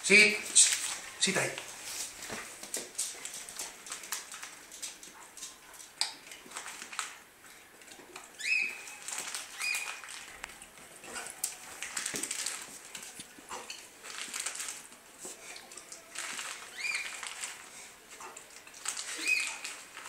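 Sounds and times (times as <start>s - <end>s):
plastic packet crinkling: 0.5s - 5.6s, 6.2s - 7.2s, 8.2s - 17.9s, 18.5s - 20.0s.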